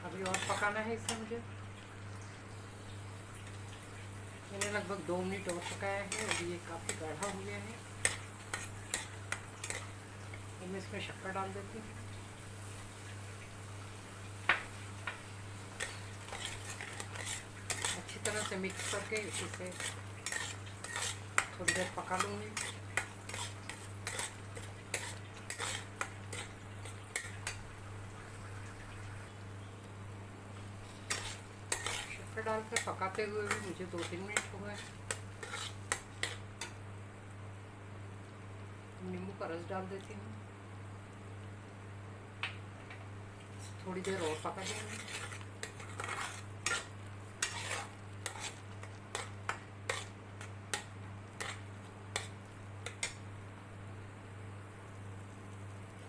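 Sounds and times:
low steady hum: 0:00.0 - 0:56.0
metal spatula scraping jam: 0:00.2 - 0:01.2, 0:04.6 - 0:09.9, 0:15.8 - 0:27.6, 0:30.8 - 0:36.7, 0:43.6 - 0:51.6.

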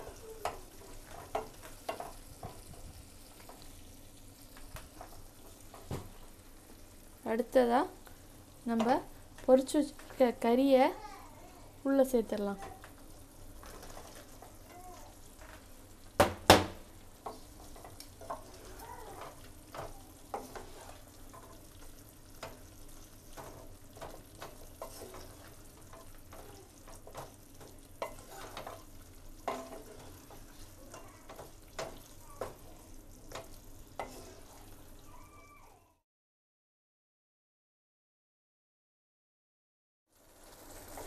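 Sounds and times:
low sizzle: 0:00.0 - 0:36.0, 0:40.1 - 0:41.0
spatula scraping pan: 0:12.4 - 0:15.7, 0:17.2 - 0:34.8.

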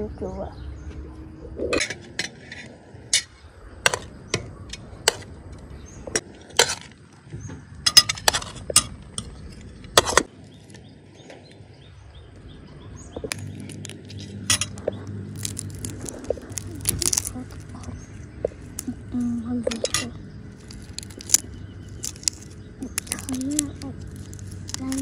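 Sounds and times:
prawn shell crackling: 0:13.2 - 0:25.0.

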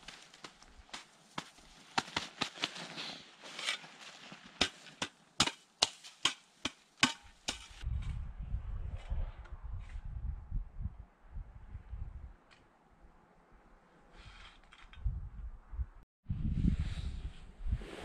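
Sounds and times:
rustling: 0:00.0 - 0:06.7
tool chopping wooden branch: 0:04.6 - 0:07.8.

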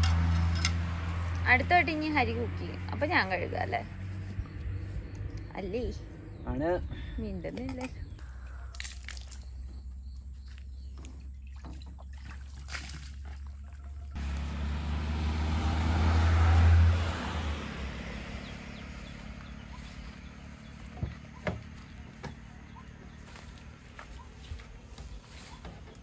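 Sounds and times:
vehicle passing by: 0:00.0 - 0:07.5, 0:14.1 - 0:26.0.

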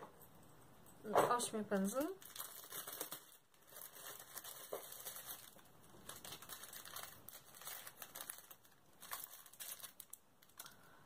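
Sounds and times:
plastic wrapping crinkling: 0:01.5 - 0:11.0.

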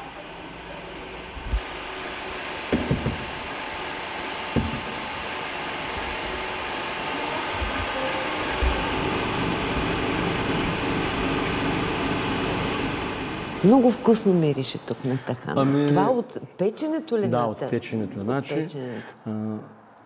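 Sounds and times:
machinery whirring and hissing: 0:00.0 - 0:15.9
soft knock: 0:02.7 - 0:03.3, 0:04.6 - 0:05.0.

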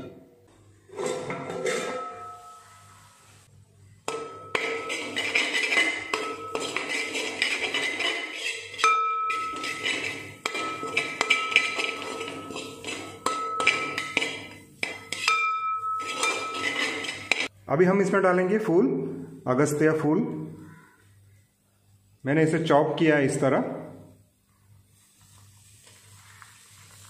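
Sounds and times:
spatula scraping metal pot: 0:00.8 - 0:02.8, 0:04.1 - 0:17.5
pot ringing: 0:01.2 - 0:03.0, 0:04.1 - 0:17.5.

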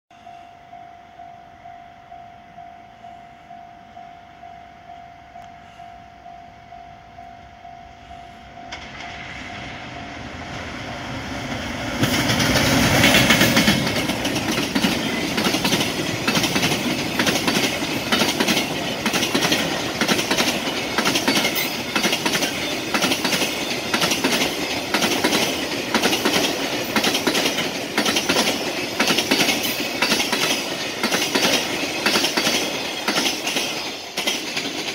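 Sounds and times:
freight train passing: 0:00.1 - 0:34.9
wagons clattering over rail joints: 0:12.0 - 0:34.9.

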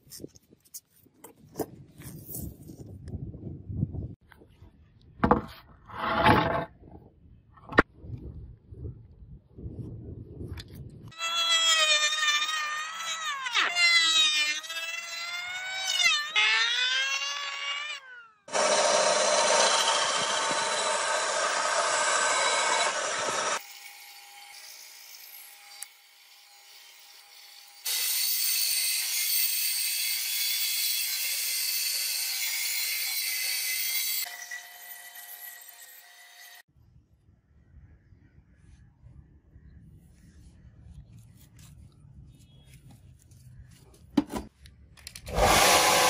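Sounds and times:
bandsaw humming: 0:11.2 - 0:24.0, 0:45.3 - 0:46.0
bandsaw cutting wood: 0:11.2 - 0:36.6, 0:45.3 - 0:46.0
wavering power tool whine: 0:11.2 - 0:36.7, 0:45.3 - 0:46.0
loud dense cutting noise: 0:18.5 - 0:23.6, 0:45.3 - 0:46.0.

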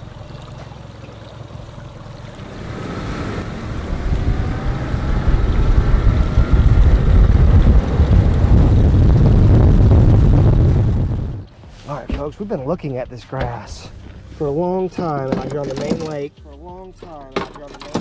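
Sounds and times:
water rushing along hull: 0:00.0 - 0:11.4
outboard motor whining: 0:00.0 - 0:11.5
wind on microphone: 0:02.6 - 0:11.5.

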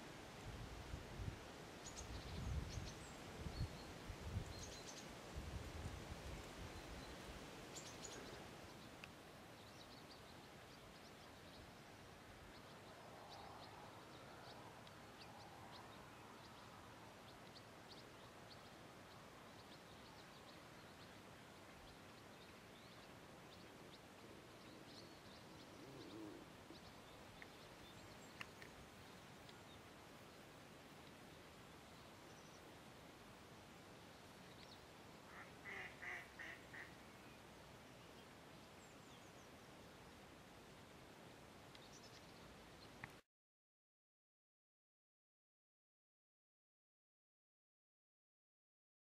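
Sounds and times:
small birds chirping: 0:12.4 - 0:30.4, 0:34.1 - 0:40.0.

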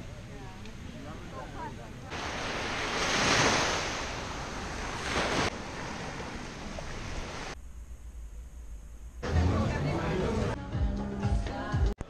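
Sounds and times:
waves washing on sandy beach: 0:02.1 - 0:07.6.

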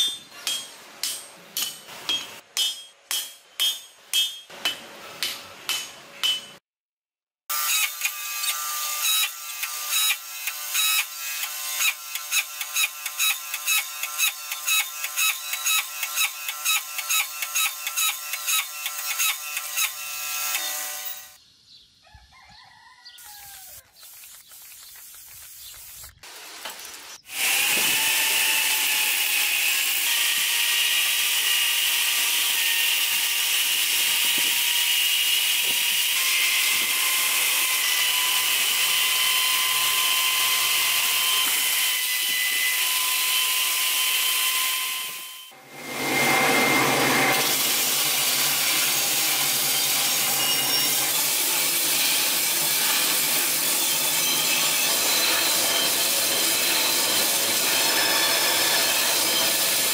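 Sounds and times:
power hammer striking hot steel: 0:00.0 - 0:06.6
high-pitched grinder whine: 0:27.2 - 0:59.9.

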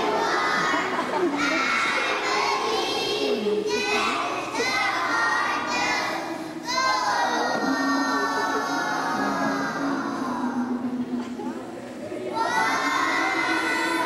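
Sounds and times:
children talking and singing: 0:00.0 - 0:14.0.

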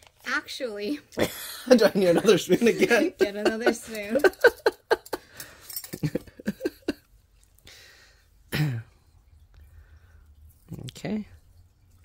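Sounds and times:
metal spoons clinking: 0:02.6 - 0:07.0
person coughing: 0:08.5 - 0:09.0.

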